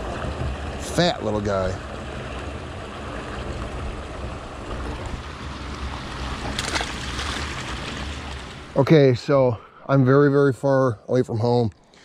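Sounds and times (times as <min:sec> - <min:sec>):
wind rumbling on microphone: 0:00.0 - 0:08.8
water pouring over spillway: 0:04.6 - 0:08.8.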